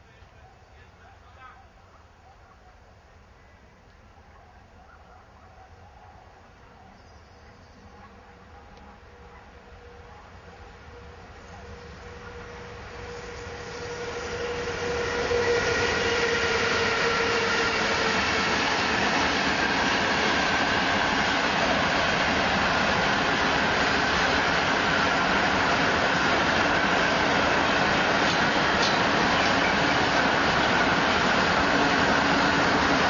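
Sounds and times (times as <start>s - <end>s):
electric locomotive whine: 6.9s - 33.0s.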